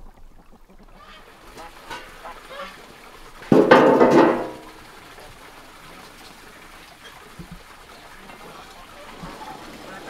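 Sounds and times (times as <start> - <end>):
faint outdoor hiss: 0.0 - 10.0.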